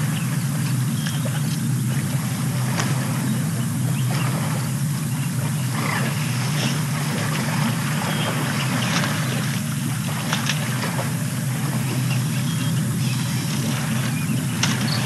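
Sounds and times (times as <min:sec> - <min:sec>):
low engine-like drone: 0:00.0 - 0:15.0
elephant calf splashing in mud: 0:05.6 - 0:15.0.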